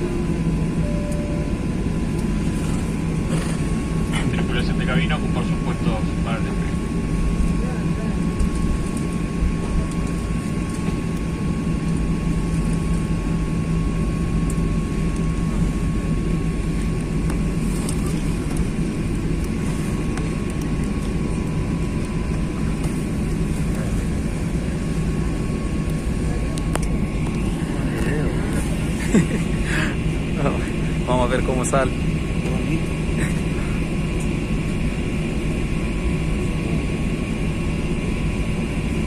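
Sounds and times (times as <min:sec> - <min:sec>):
thin high whine: 0:00.0 - 0:06.5
jet engines rumbling in cabin: 0:00.0 - 0:39.0.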